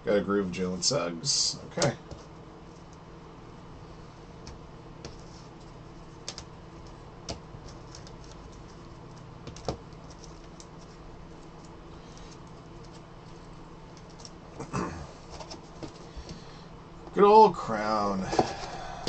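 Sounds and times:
steady low hum: 0.0s - 19.0s
cards flipped and tapped: 6.2s - 11.0s.

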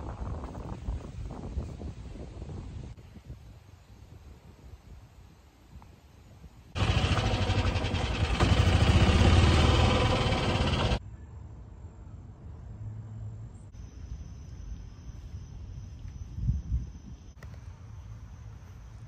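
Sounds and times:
golf cart motor running: 6.8s - 11.0s.

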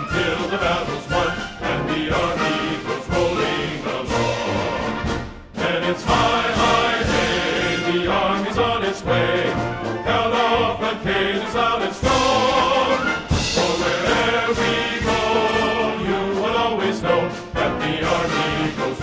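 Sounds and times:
choir singing: 0.0s - 19.0s
orchestral music: 0.0s - 19.0s.

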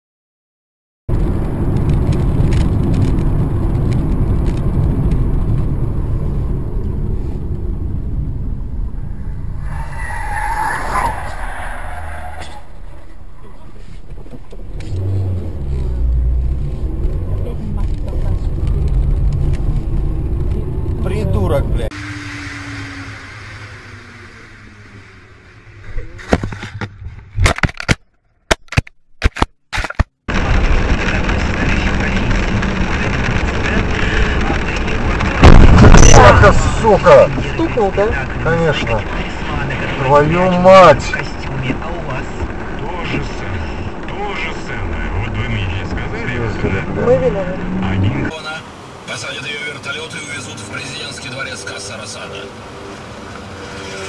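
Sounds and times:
car engine and road noise: 1.1s - 54.0s
tyre squeal: 9.5s - 13.2s.

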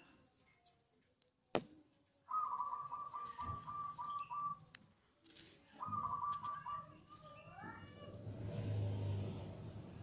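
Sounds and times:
bird trilling: 2.3s - 4.7s, 5.8s - 7.5s.

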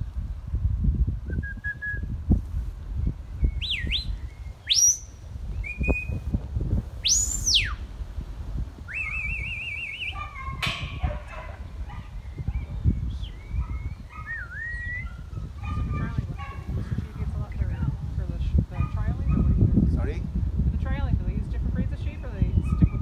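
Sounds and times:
whistled calls: 3.4s - 6.2s, 7.0s - 7.8s, 8.9s - 15.5s, 22.1s - 23.0s.

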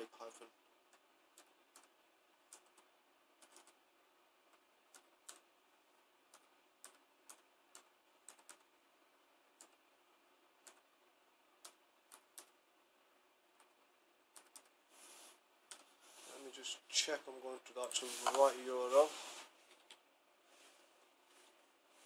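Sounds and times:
laptop keyboard keys clicking: 0.9s - 3.8s, 4.5s - 5.5s, 6.3s - 8.7s, 9.6s - 9.8s, 10.6s - 10.9s, 11.6s - 12.6s, 13.6s - 14.8s, 15.7s - 15.9s.

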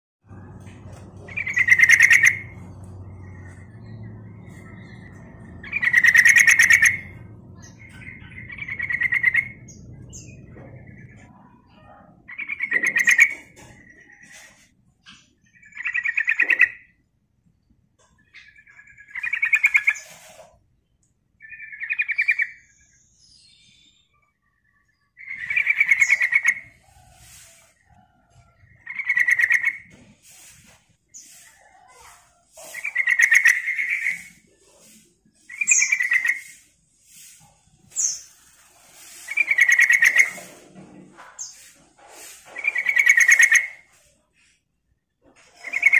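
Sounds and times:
bird singing rapid notes: 0.4s - 11.6s.

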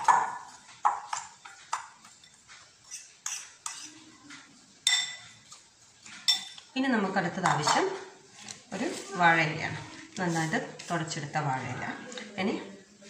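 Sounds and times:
metal spoon clinking against glass bowl: 4.8s - 5.3s, 6.3s - 6.6s.

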